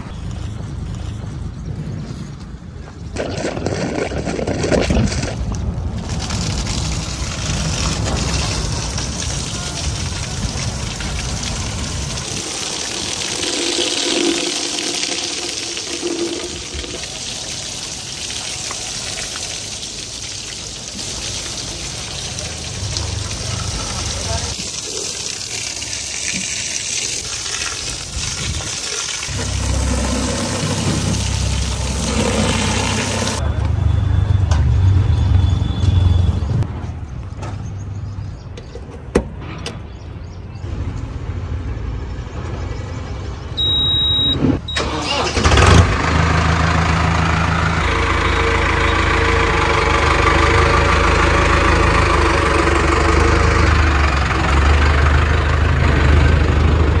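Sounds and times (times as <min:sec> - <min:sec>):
hose spraying water: 0:06.0 - 0:33.4
diesel tractor engine running: 0:29.3 - 0:34.2, 0:43.6 - 0:57.0
short electronic beep: 0:43.6 - 0:44.9.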